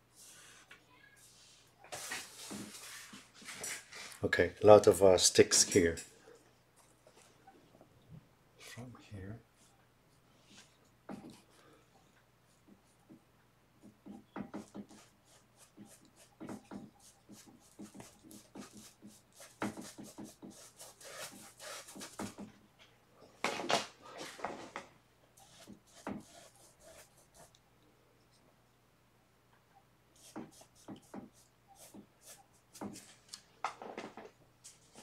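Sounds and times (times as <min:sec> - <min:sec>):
paintbrush scrubbing strokes: 0:00.1 - 0:04.1, 0:14.6 - 0:22.3, 0:25.4 - 0:27.6, 0:30.2 - 0:33.2
paintbrush dabbing on canvas: 0:14.0 - 0:22.4, 0:25.4 - 0:27.6, 0:30.2 - 0:33.1.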